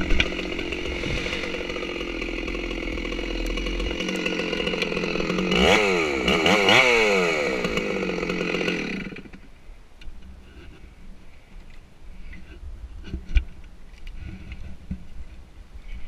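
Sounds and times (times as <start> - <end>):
chainsaw running at high revs: 0.0 - 9.4.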